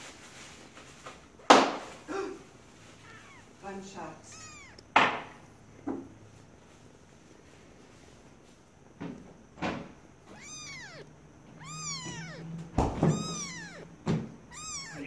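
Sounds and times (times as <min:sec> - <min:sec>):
kitten mewing: 0:03.0 - 0:05.0, 0:10.2 - 0:15.0
soft knocks: 0:12.0 - 0:14.4.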